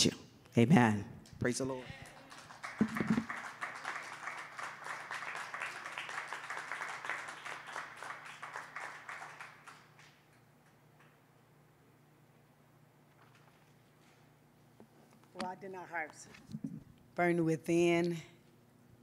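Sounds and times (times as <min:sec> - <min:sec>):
audience applauding: 0:02.0 - 0:10.3.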